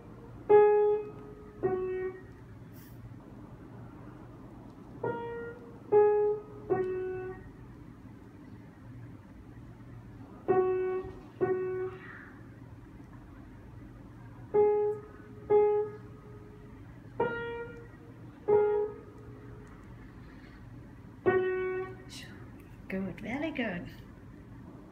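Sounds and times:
upright piano notes: 0:00.0 - 0:02.6, 0:03.6 - 0:08.6, 0:10.4 - 0:12.2, 0:14.3 - 0:20.0.

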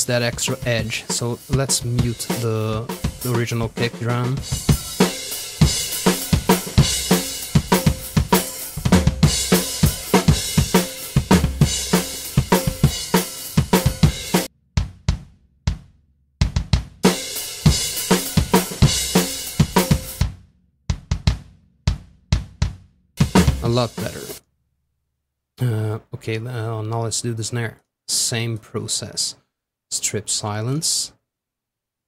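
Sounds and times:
drum kit groove: 0:00.0 - 0:24.4.

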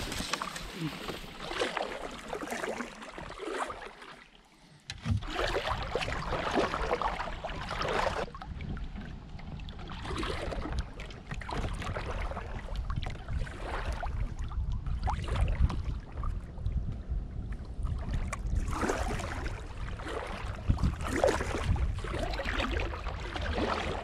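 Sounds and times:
paddle splashing in water: 0:00.0 - 0:16.5, 0:17.5 - 0:24.0
wind rumble on microphone: 0:05.0 - 0:24.0.

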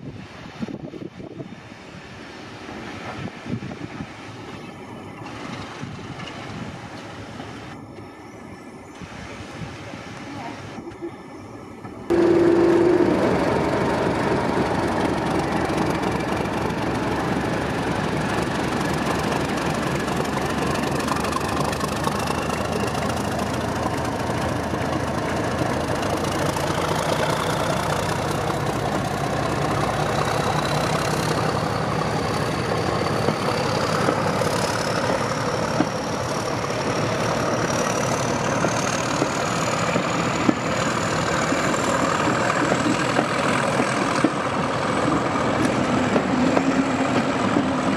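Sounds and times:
diesel locomotive engine running: 0:02.2 - 0:47.9
brief steady tone: 0:12.1 - 0:13.2
high whine rising in pitch: 0:12.1 - 0:14.4.

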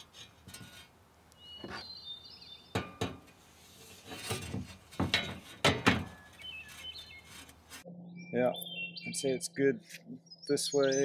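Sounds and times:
bird chirping: 0:01.3 - 0:02.8, 0:06.1 - 0:11.0.

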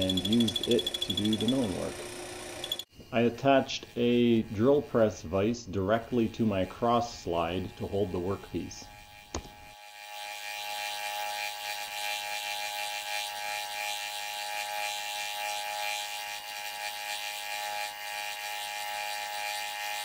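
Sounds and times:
lathe cutter chatter: 0:00.0 - 0:08.8
lathe whine: 0:00.0 - 0:20.0.

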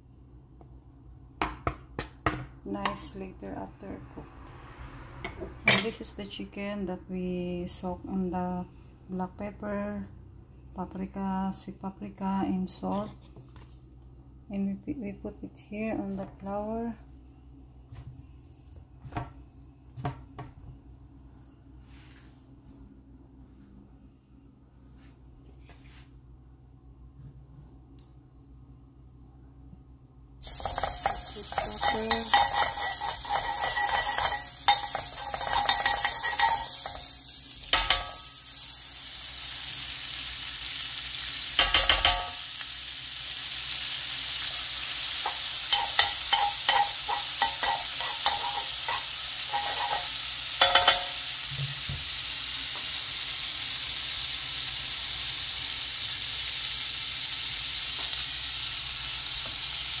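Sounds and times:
butter sizzling in frying pan: 0:30.4 - 1:00.0
utensil scraping and tapping pan: 0:30.5 - 0:37.1, 0:37.7 - 0:38.2, 0:45.2 - 0:51.2.

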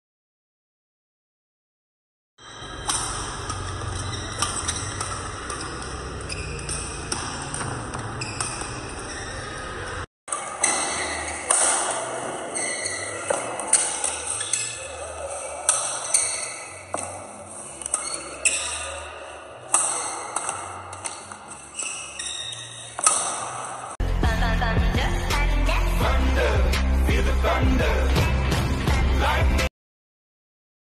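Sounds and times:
shoe squeaks: 0:02.4 - 0:23.9
rackets striking shuttlecock: 0:02.5 - 0:19.0, 0:19.6 - 0:24.0.

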